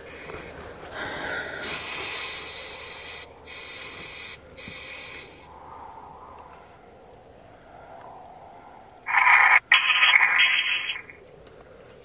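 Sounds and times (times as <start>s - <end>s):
radio static hiss sweeping: 1.6s - 5.5s, 9.0s - 11.2s.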